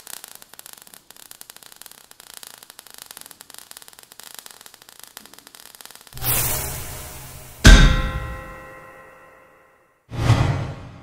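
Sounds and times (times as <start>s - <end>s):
sparks crackling and fizzing: 0.0s - 8.6s.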